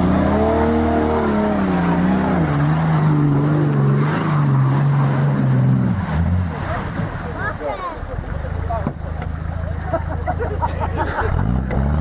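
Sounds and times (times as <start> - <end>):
engine revving hard: 0.0 - 6.4, 11.2 - 12.0
tyres churning through mud: 0.0 - 12.0.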